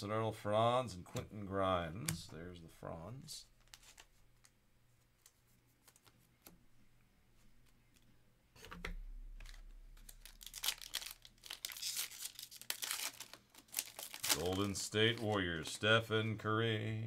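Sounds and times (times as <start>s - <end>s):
foil wrapper crinkling: 9.4s - 15.7s.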